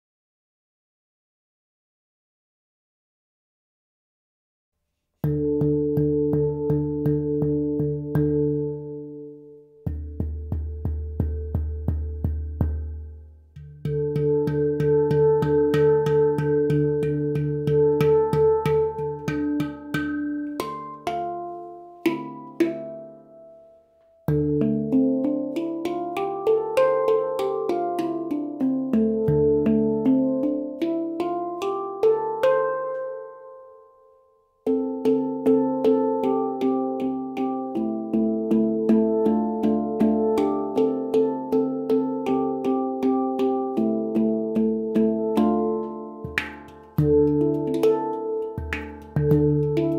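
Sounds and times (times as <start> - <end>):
handpan played with fingers: 5.2 - 49.9.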